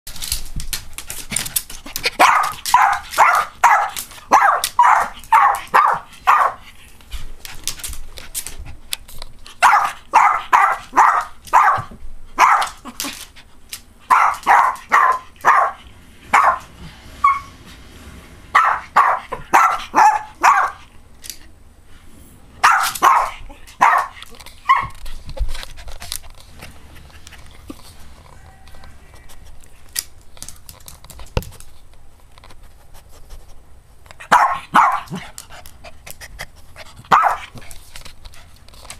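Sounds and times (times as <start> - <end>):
small dog barking: 2.2 - 6.6, 9.6 - 12.9, 14.1 - 17.5, 18.6 - 20.8, 22.6 - 24.9, 34.3 - 35.2, 37.1 - 37.5.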